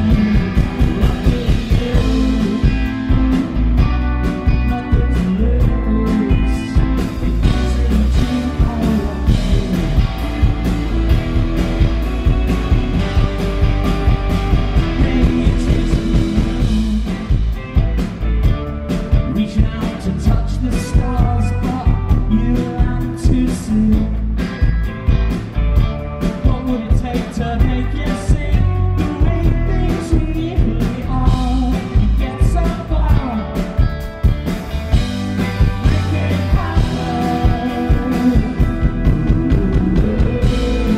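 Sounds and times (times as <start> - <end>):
man singing lead vocal: 0.0 - 10.4, 14.6 - 17.6, 19.1 - 24.5, 26.2 - 34.0, 35.4 - 40.9
live rock band: 0.0 - 40.9.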